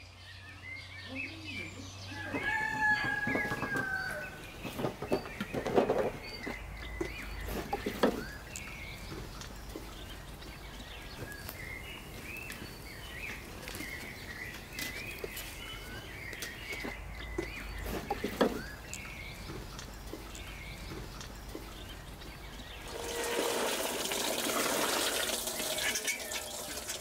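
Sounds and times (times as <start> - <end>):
small birds chirping: 0.0 - 27.0
wheelbarrow knocks and clunks: 2.3 - 9.9, 16.8 - 18.9.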